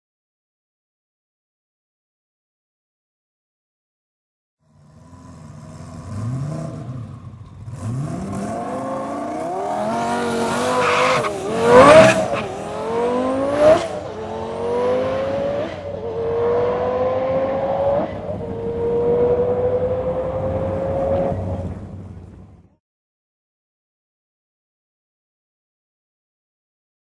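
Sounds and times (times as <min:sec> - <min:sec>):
sports car engine revving: 0:04.6 - 0:22.4.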